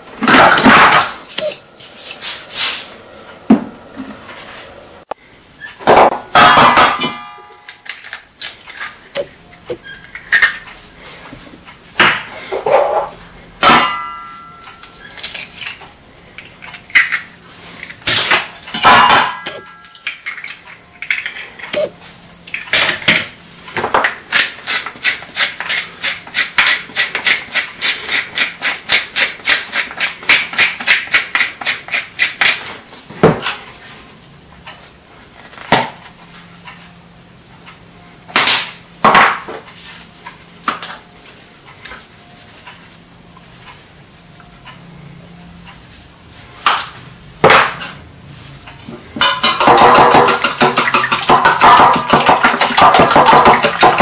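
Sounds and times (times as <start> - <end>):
pepper mill grinding: 49.2 - 54.0.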